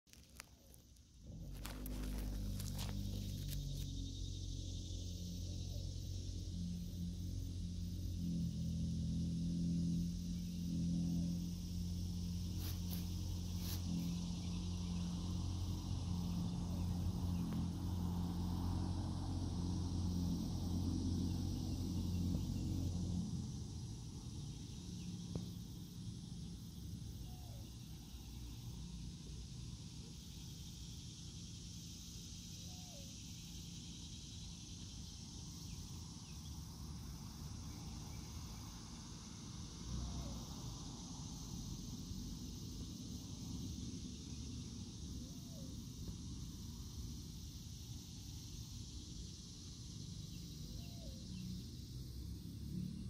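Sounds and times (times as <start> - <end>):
high insect drone: 0.1 - 53.0
low motor hum: 1.1 - 29.8
faint bird chirps: 32.6 - 33.4.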